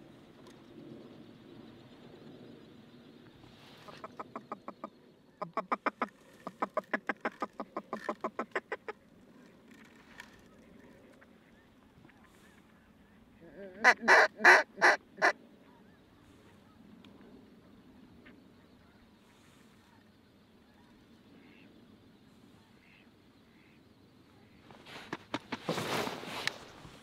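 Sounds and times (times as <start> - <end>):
duck quacking: 13.4 - 15.4.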